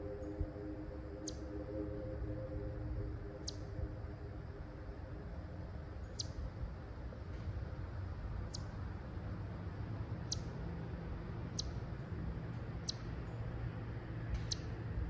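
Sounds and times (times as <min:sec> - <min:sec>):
faint chord of steady tones: 0:00.0 - 0:08.4
low rumble: 0:00.0 - 0:15.0
small animal chirping: 0:01.2 - 0:01.4, 0:03.4 - 0:03.6, 0:06.1 - 0:06.4, 0:08.5 - 0:08.7, 0:10.2 - 0:10.5, 0:11.5 - 0:11.8, 0:12.8 - 0:13.1, 0:14.4 - 0:14.7.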